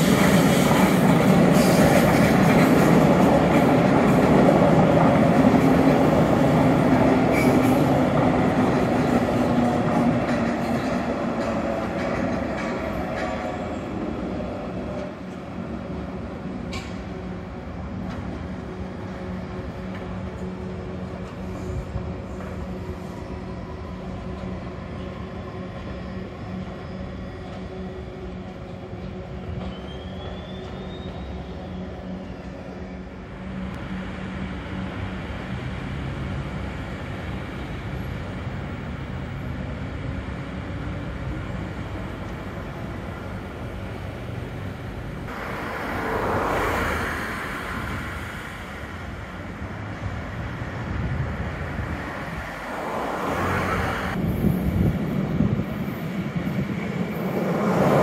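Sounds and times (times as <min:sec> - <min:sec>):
loud rush passing by: 0:45.3 - 0:49.4, 0:51.5 - 0:55.1.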